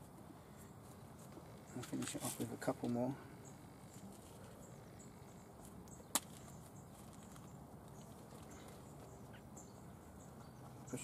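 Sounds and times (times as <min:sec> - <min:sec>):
faint handling noise: 0:00.0 - 0:03.1, 0:05.5 - 0:09.3.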